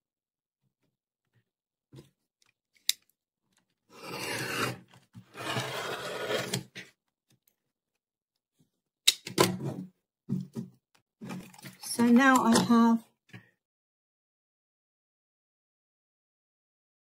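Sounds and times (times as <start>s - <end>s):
rotary cutter slicing fabric: 3.9s - 6.6s.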